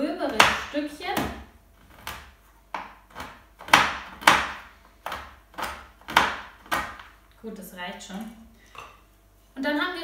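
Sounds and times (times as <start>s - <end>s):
knife chopping on cutting board: 0.2s - 7.1s.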